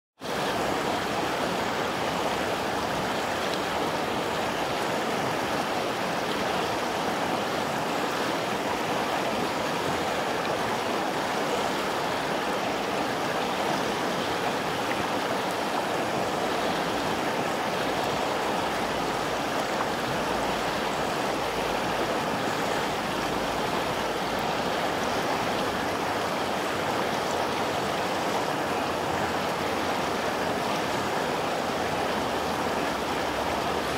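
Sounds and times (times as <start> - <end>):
river rushing over stones: 0.2 - 33.9.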